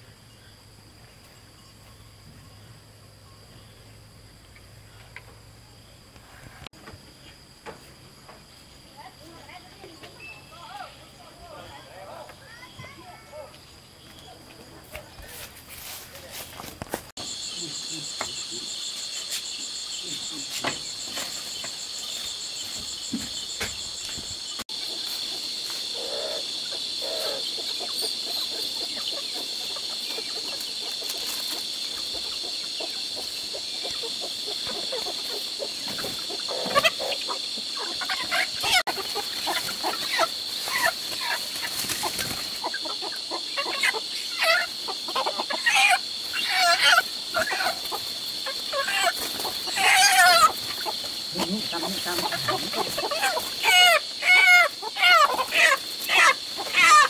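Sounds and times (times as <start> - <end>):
chickens clucking: 16.8 - 57.0
fast pulsing insect trill: 17.2 - 57.0
high-pitched insect drone: 17.2 - 57.0.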